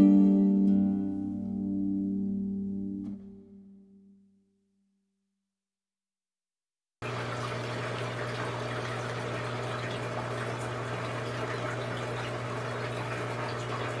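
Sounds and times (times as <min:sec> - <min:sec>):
water splashing in aquarium filter: 0:07.0 - 0:14.0.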